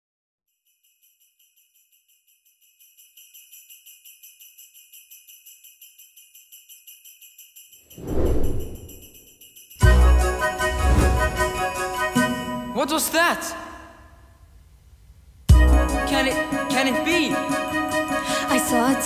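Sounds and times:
sleigh bells jingling: 0:00.6 - 0:13.2, 0:15.8 - 0:19.0
loud low whoosh: 0:08.0 - 0:09.1.

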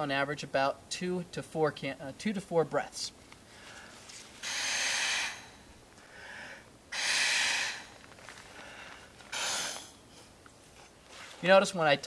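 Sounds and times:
loud hissing breaths: 0:03.5 - 0:10.0
blowing into a valve: 0:04.4 - 0:05.6, 0:06.9 - 0:07.9, 0:09.3 - 0:10.0.

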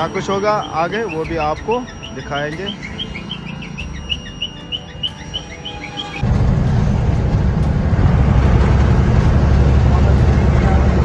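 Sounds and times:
small birds chirping: 0:00.0 - 0:06.2
low hum: 0:06.2 - 0:11.0
truck rumbling from cab: 0:06.2 - 0:11.0.

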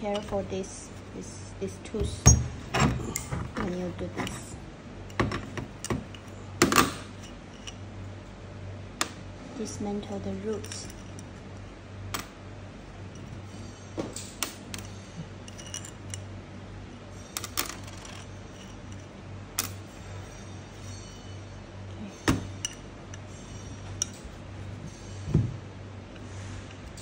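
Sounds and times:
metal parts clinking on metal plate: 0:00.0 - 0:00.8, 0:10.4 - 0:11.4, 0:13.1 - 0:16.4, 0:17.2 - 0:25.4
steady low hum: 0:00.0 - 0:27.0.

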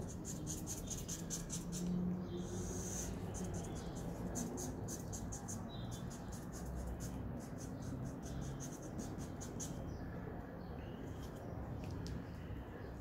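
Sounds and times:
marker pen scratching cardboard: 0:00.0 - 0:09.8.

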